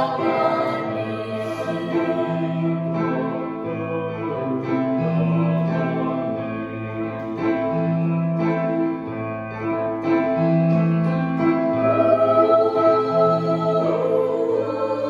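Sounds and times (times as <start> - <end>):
choir singing: 0.0 - 8.9, 10.0 - 15.0.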